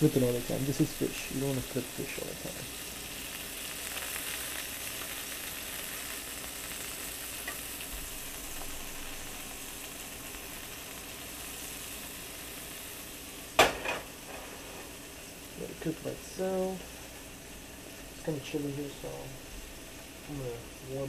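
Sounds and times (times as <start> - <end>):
fish sizzling in a skillet: 0.0 - 21.0.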